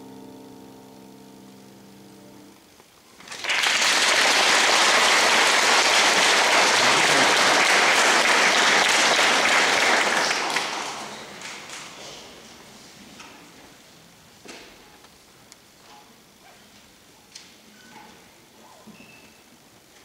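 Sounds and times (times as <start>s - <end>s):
audience applauding: 3.2s - 12.4s.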